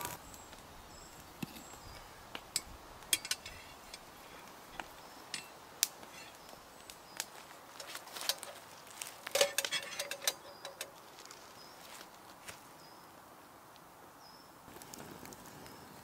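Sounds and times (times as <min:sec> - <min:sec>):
metallic clinks and knocks: 0:02.6 - 0:06.4, 0:09.3 - 0:11.0.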